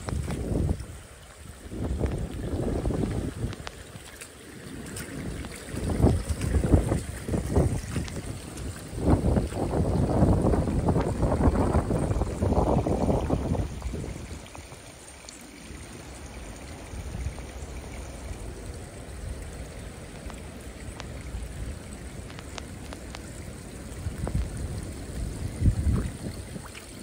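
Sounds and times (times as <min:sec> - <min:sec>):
wind rumble on microphone: 0:00.0 - 0:15.0, 0:15.6 - 0:27.0
water pouring into pond: 0:00.0 - 0:27.0.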